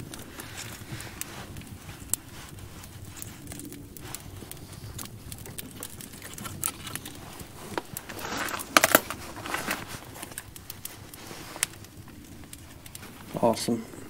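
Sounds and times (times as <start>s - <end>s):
rustle with sharp snaps: 0.0s - 13.8s
wood fire crackling: 0.0s - 14.0s.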